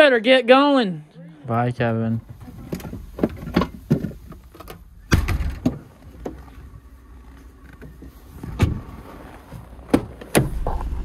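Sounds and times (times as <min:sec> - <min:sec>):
heavy thump: 0:10.0 - 0:11.0.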